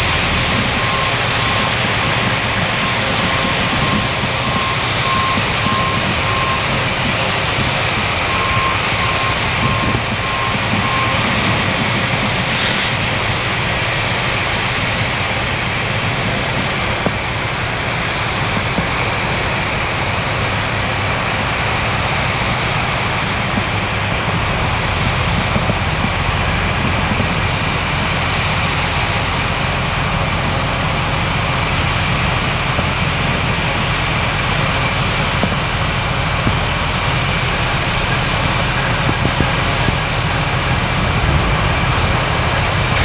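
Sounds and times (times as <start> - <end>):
machinery rumbling: 0.0 - 43.0
backup alarm beeping: 0.1 - 12.5.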